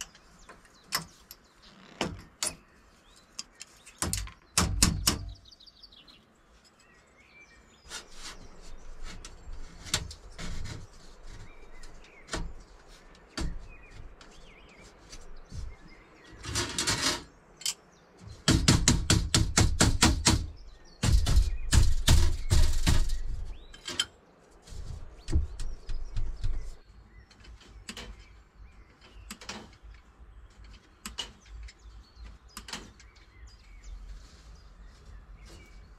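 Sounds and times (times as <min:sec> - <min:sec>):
steel strips clicking and clanking: 0:16.3 - 0:17.8, 0:20.2 - 0:24.2.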